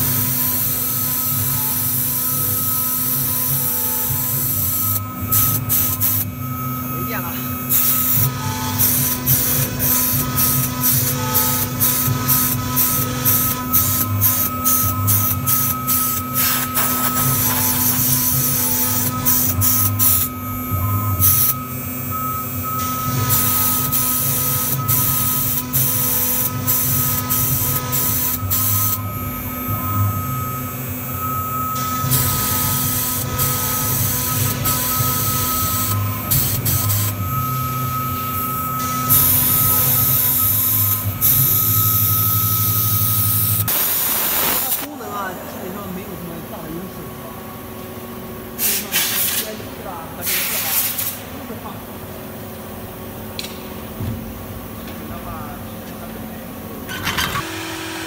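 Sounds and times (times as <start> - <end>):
router spindle whining: 0.0 - 44.1
cutting hiss of engraving bit: 0.0 - 44.9.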